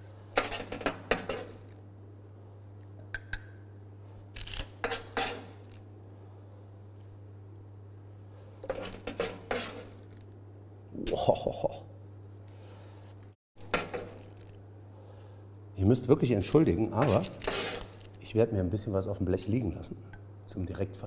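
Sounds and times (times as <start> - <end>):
steady low hum: 0.0 - 21.0
metal spoon scraping baking tray: 0.4 - 1.8, 4.8 - 5.8, 8.6 - 10.1, 13.7 - 14.2, 17.0 - 18.0.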